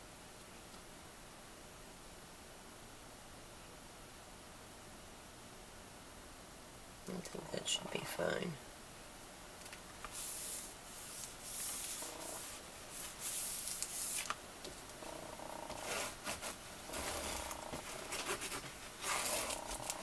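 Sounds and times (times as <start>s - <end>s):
hands rubbing paper: 10.1s - 14.4s, 15.7s - 20.0s.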